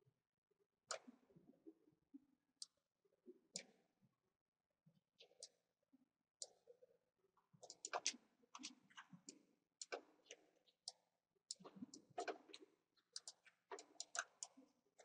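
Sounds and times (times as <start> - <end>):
mouse and keyboard clicking: 13.2 - 14.5.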